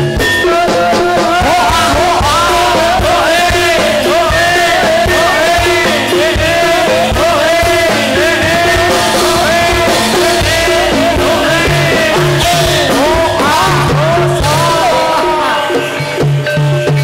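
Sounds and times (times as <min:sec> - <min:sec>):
drum strokes: 0:00.0 - 0:17.0
metallic gamelan notes: 0:00.0 - 0:17.0
sliding melody line: 0:00.2 - 0:16.6
low repeating notes: 0:01.9 - 0:15.8.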